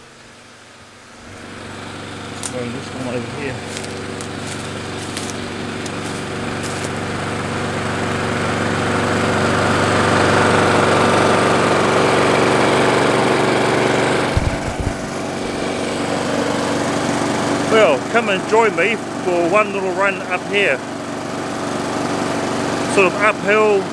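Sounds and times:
lawn mower running: 0.0 - 23.9
low bumps: 14.3 - 16.2.

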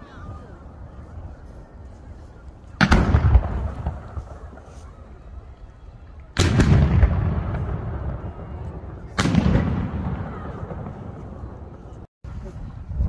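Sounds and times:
firework bang: 2.8 - 4.3, 6.4 - 8.4, 9.1 - 11.3.

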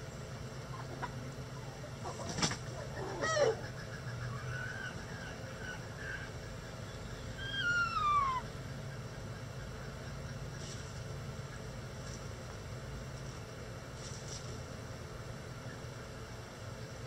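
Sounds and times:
chickens squawking and clucking: 0.6 - 11.9.

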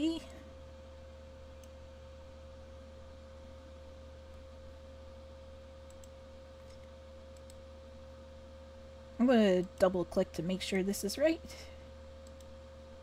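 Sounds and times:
low electrical hum: 0.0 - 13.0
faint mouse clicks: 5.8 - 7.6, 12.2 - 12.6.

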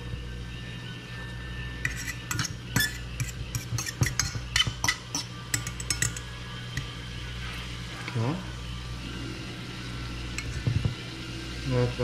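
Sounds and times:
steady low hum: 0.0 - 12.0
metal fork scraping a frying pan: 1.8 - 6.3.

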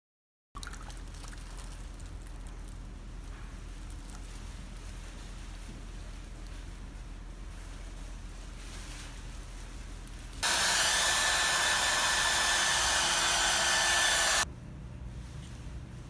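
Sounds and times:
hair dryer blowing: 10.4 - 14.5.

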